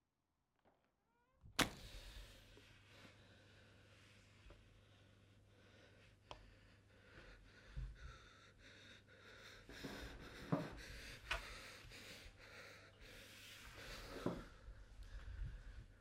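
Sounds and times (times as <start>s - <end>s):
faint low electrical hum: 1.4s - 16.0s.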